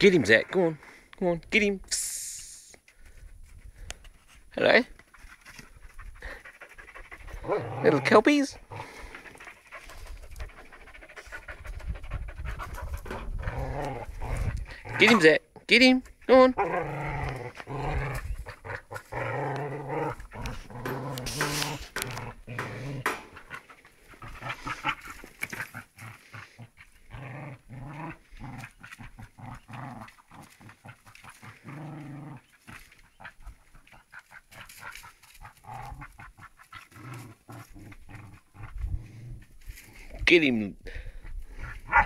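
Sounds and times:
dogs growling: 5.5 - 15.4, 16.5 - 40.2, 41.0 - 42.0
scuffling and clicking: 18.9 - 26.1.

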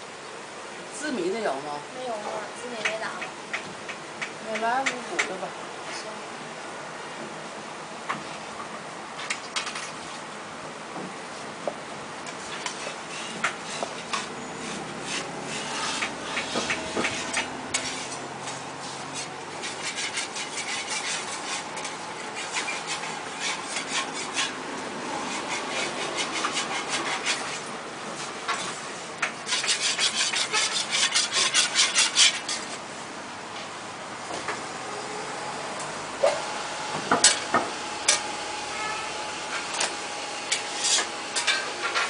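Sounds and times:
metal spatula scraping griddle: 12.2 - 32.8, 37.1 - 39.9, 40.5 - 42.0.

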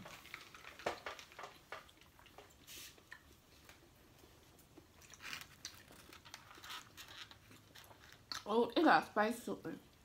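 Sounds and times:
faint eating noises: 0.0 - 10.0
soft hiss: 1.7 - 5.6.

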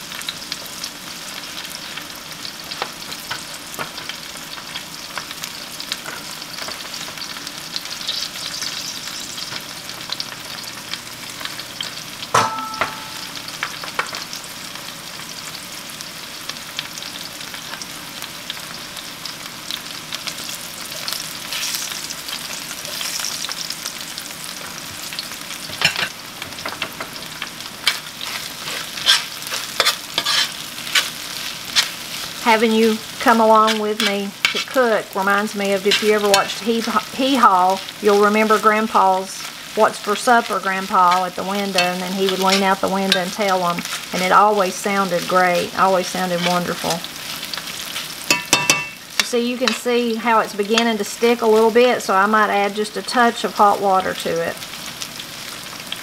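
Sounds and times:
vegetables sizzling in skillets: 0.0 - 56.0
metal spatula scraping skillet: 27.8 - 34.9, 35.7 - 37.1, 41.0 - 44.2, 45.8 - 47.0.

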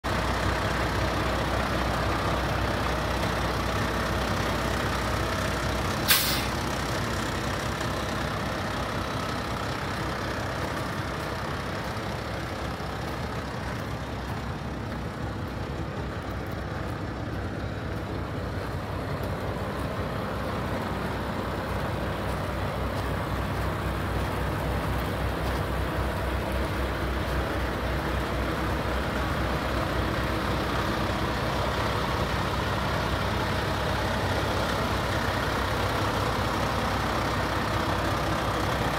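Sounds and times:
diesel truck engine idling: 0.0 - 38.9
air brake release blast: 6.0 - 6.6.

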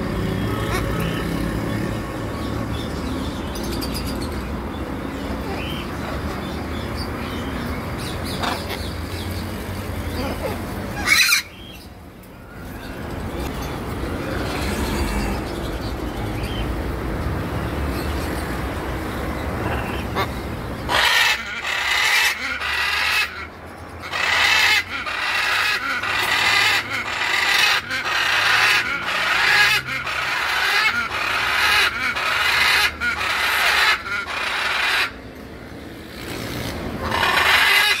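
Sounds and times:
cockatoo screeching: 10.1 - 11.7, 20.9 - 35.2, 37.0 - 38.0.

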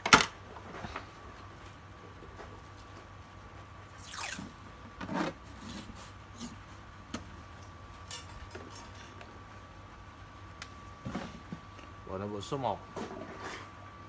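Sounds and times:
masking tape ripping off roll: 4.0 - 4.6.

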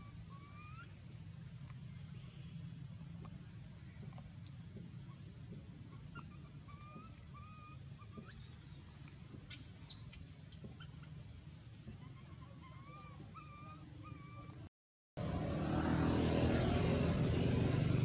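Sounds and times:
low steady hum: 0.0 - 18.0
baby monkey whimpering cries: 5.9 - 8.7, 11.9 - 14.7.

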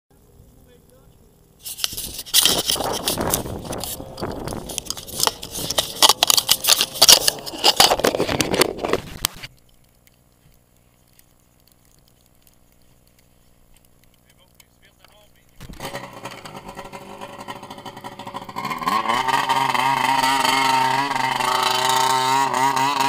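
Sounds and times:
sharp clicks: 0.8 - 19.0
camera handling noise: 1.6 - 9.5.

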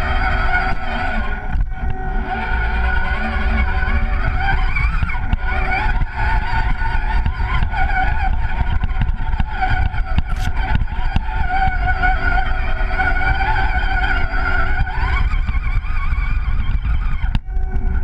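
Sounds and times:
low rumble: 0.0 - 18.0
toy truck motor whine: 0.0 - 18.0.

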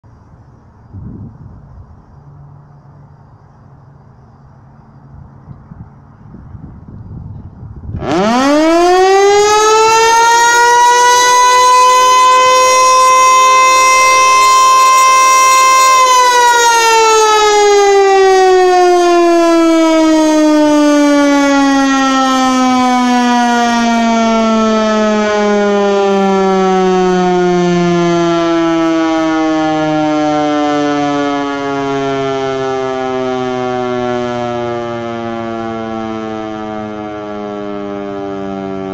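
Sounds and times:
electromechanical siren wailing: 7.8 - 38.9.

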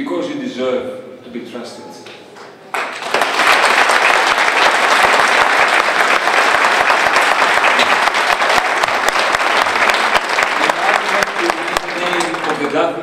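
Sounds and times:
audience applauding: 2.7 - 13.0.

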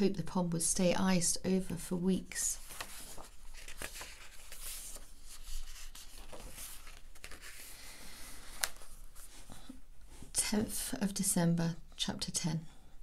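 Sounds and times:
book pages rustling: 2.5 - 9.8.

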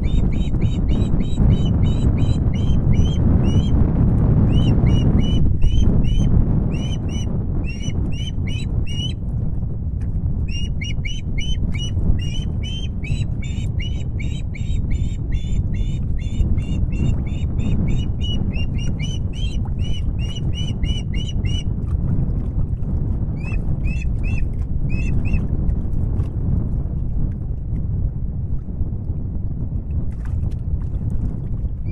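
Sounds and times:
osprey high chirps: 0.0 - 3.7, 4.5 - 9.2, 10.5 - 21.6
wind rumble on microphone: 0.0 - 31.9.

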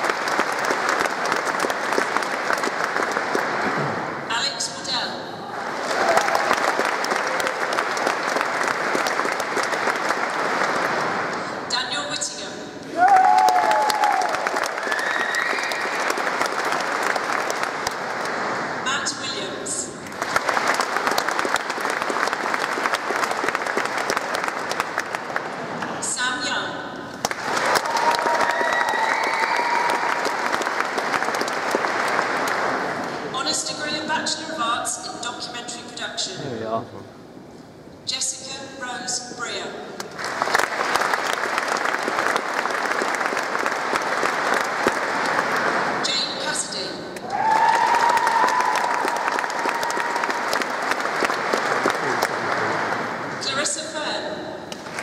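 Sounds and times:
audience applauding: 0.0 - 4.2, 5.6 - 11.5, 12.9 - 18.8, 20.0 - 25.9, 27.1 - 33.3, 40.1 - 46.1, 47.2 - 53.4, 54.7 - 55.0.

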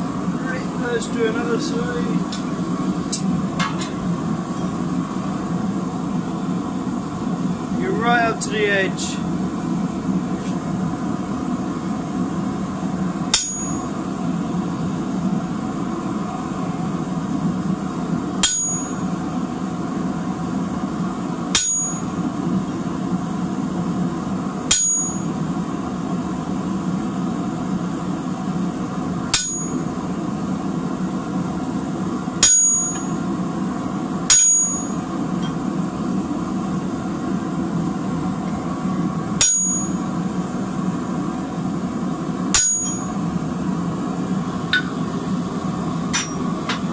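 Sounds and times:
steady low hum: 0.0 - 46.9
hammer striking chisel on steel: 13.3 - 13.8, 18.4 - 19.0, 21.6 - 22.1, 24.7 - 25.3, 29.3 - 29.8, 32.4 - 33.1, 34.3 - 35.0, 39.4 - 40.0, 42.6 - 43.1, 46.1 - 46.8.

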